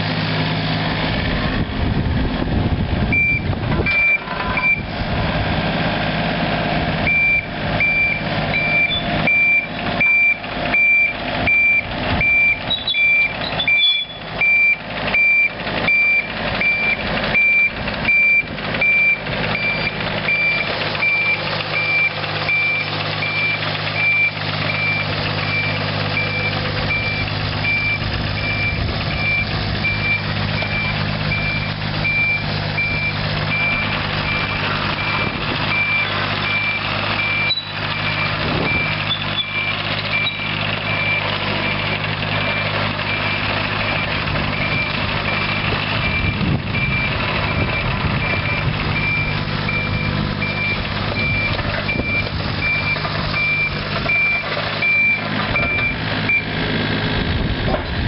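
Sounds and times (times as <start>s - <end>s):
diesel engine running: 0.0s - 58.0s
travel alarm beeping: 3.1s - 4.9s, 7.1s - 40.4s, 46.0s - 56.4s.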